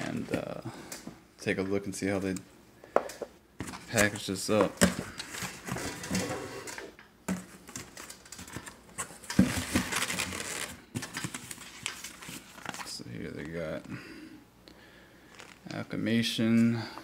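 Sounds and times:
paper rustling and scraping: 7.6s - 13.0s
cardboard box being opened: 9.4s - 11.6s.

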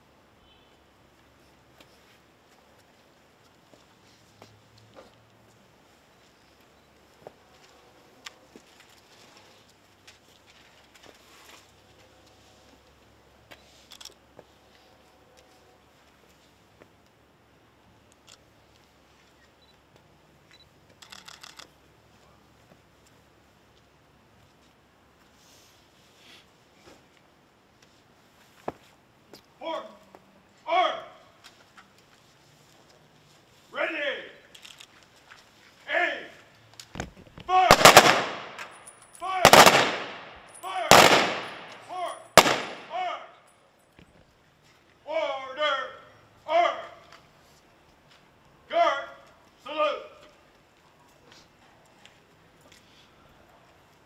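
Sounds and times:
shouted command: 29.6s - 30.0s, 30.6s - 31.4s, 33.7s - 34.4s, 35.8s - 36.5s, 37.5s - 38.3s, 39.2s - 40.0s, 40.6s - 43.4s, 45.0s - 47.1s, 48.7s - 50.3s
rifle volleys echoing: 37.5s - 43.4s.

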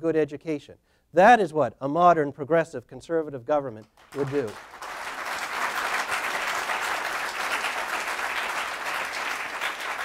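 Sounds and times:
audience applauding: 4.0s - 10.0s.

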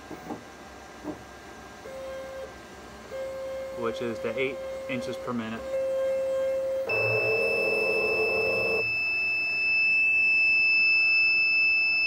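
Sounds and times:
high-pitched alarm beep: 5.6s - 12.0s
stepper motor buzzing: 5.7s - 9.1s.

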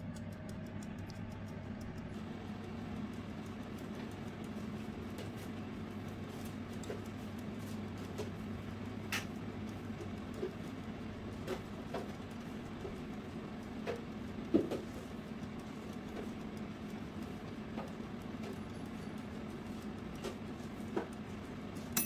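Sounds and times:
short clicks and ticks: 0.0s - 5.4s
air fryer fan hum: 0.0s - 22.0s.

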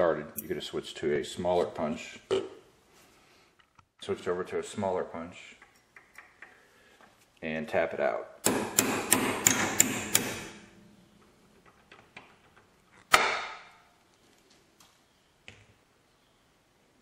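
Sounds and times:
hammer tapping metal pin punch: 8.4s - 10.5s.

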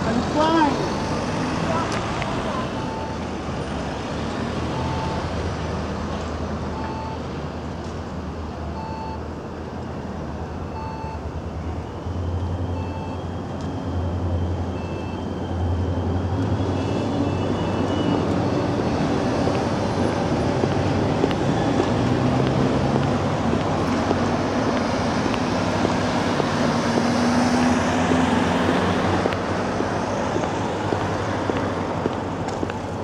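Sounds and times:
road traffic rumble: 0.0s - 33.0s
short electronic beeps: 0.7s - 1.2s, 2.6s - 3.2s, 4.7s - 5.3s, 6.7s - 7.2s, 8.8s - 9.3s, 10.6s - 11.9s, 12.6s - 13.8s, 14.7s - 15.4s.

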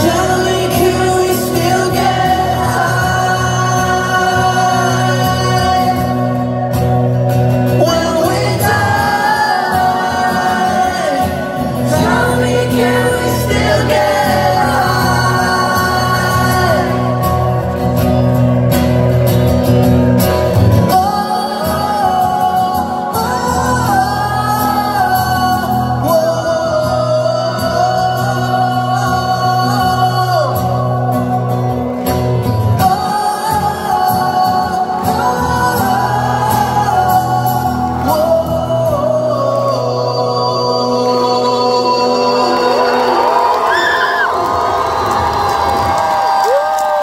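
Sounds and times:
electric bass: 0.0s - 29.1s
strummed acoustic guitar: 0.0s - 43.2s
man singing lead vocals: 0.0s - 44.8s.

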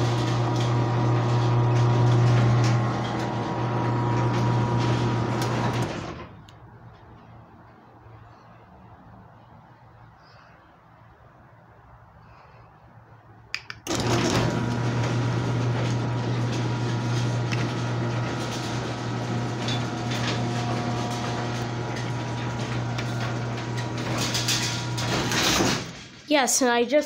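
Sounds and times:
garage door rattling on tracks: 0.0s - 6.4s, 13.9s - 26.3s
garage door opener motor hum: 0.0s - 6.5s, 13.9s - 26.2s
garage door opener click: 0.0s - 6.6s, 13.8s - 26.2s.

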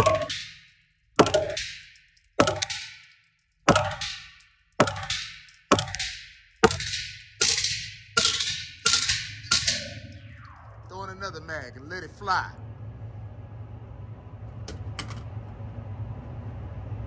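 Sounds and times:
gunshots echoing: 3.7s - 10.2s.

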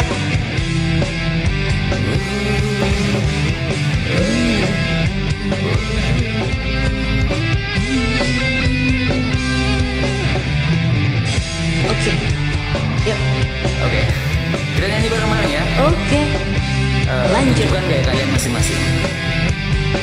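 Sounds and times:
rock backing track: 0.0s - 20.0s
lead guitar bending notes: 1.8s - 10.8s.

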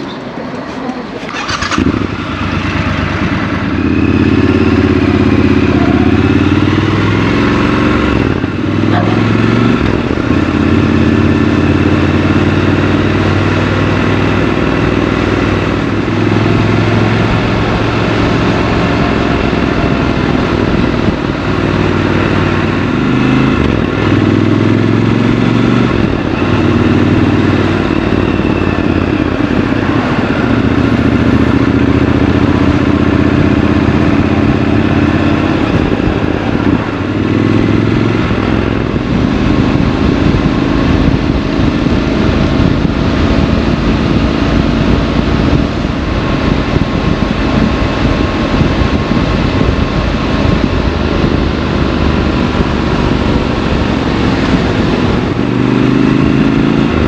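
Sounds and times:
motorcycle engine changing gear: 0.7s - 57.0s.

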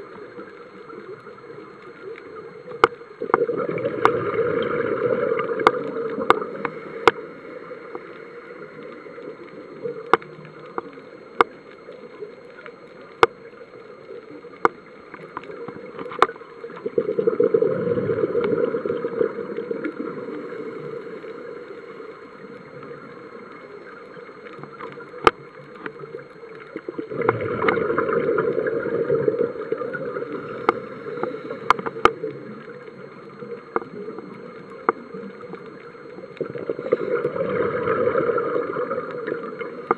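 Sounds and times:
sharp clicks underwater: 0.0s - 39.9s
exhaled bubbles rushing: 3.2s - 6.7s, 16.8s - 21.0s, 27.0s - 32.6s, 36.4s - 39.9s
diver breathing through regulator: 30.3s - 32.0s.

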